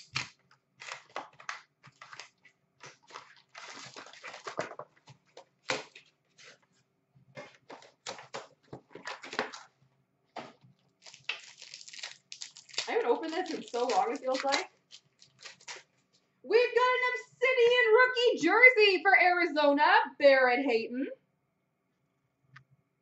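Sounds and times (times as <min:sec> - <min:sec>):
cardboard and wrappers rustling: 0:00.0 - 0:16.2.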